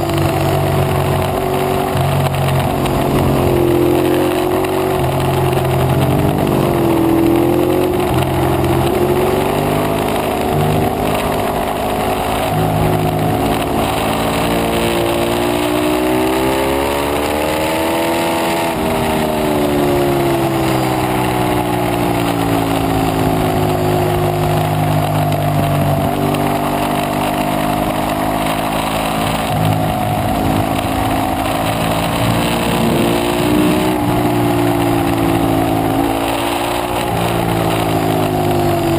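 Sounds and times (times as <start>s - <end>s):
motorcycle engine accelerating: 0.0s - 38.9s
wind rush: 28.6s - 38.9s.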